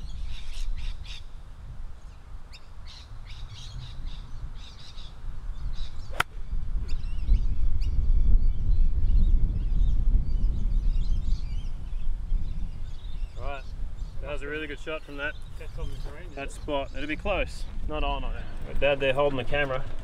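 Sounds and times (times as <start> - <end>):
wind rumble on microphone: 0.0 - 20.0
birds chirping: 2.0 - 20.0
golf club striking ball: 6.1 - 6.4.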